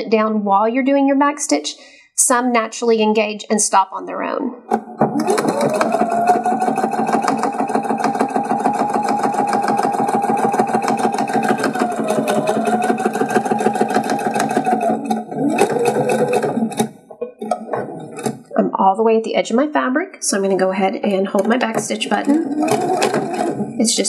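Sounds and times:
sewing machine stitching: 4.7s - 18.5s, 21.1s - 24.0s.

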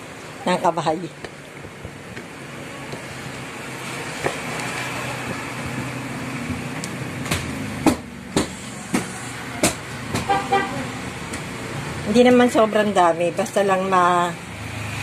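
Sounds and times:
background traffic noise: 0.0s - 15.0s.

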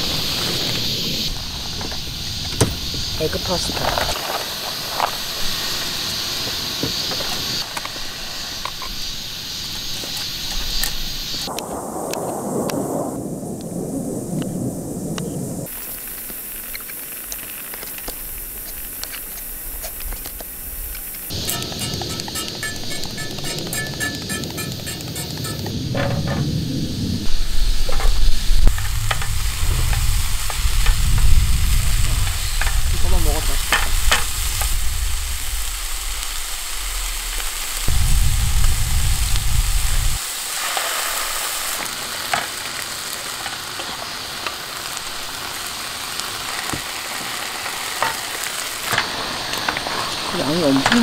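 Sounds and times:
food sizzling in a frying pan: 0.0s - 11.5s, 15.6s - 51.0s
low rumble: 19.7s - 40.2s
chopsticks clicking against pan: 21.4s - 25.6s.

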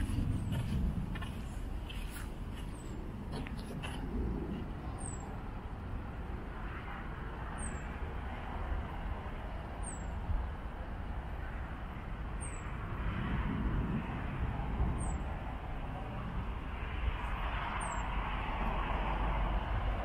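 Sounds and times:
low rumble: 0.0s - 5.7s.

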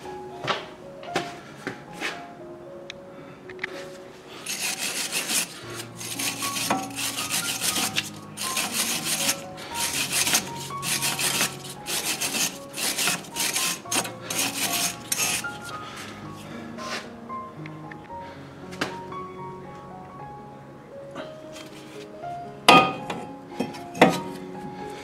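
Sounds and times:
background music: 0.0s - 25.0s
hand scrubbing rusty metal: 4.4s - 16.1s.

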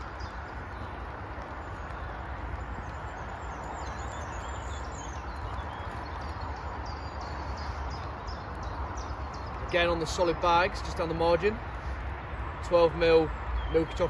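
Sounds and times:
small birds chirping: 0.0s - 14.0s
wind rumble on microphone: 0.0s - 14.0s.

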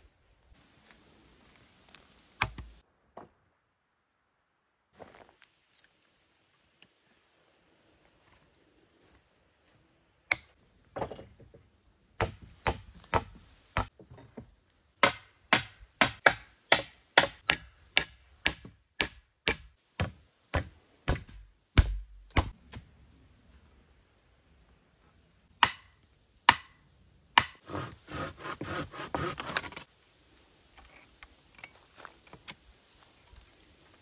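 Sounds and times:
sharp strikes on wood: 12.2s - 13.9s, 15.0s - 22.6s, 25.6s - 25.9s, 26.5s - 26.8s, 27.4s - 27.8s.

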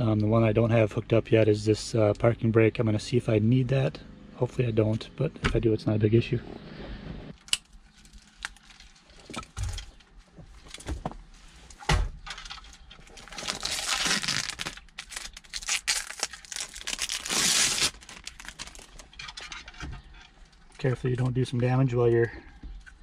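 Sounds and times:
plastic bag crinkling: 13.0s - 19.2s.

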